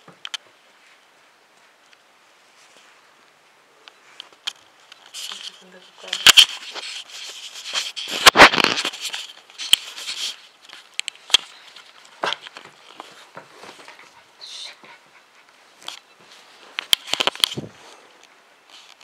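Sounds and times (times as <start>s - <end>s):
puppy scuffling on carpet: 11.6s - 16.8s.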